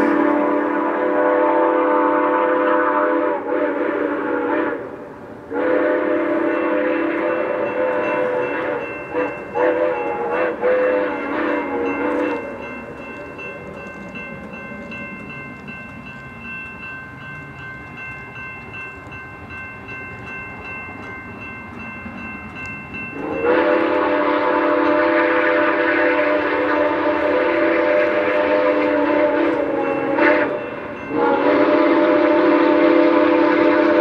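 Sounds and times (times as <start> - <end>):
railroad crossing bell ringing: 0.0 - 3.9, 4.7 - 34.0
steam whistle blowing chord: 0.0 - 12.8, 23.0 - 34.0.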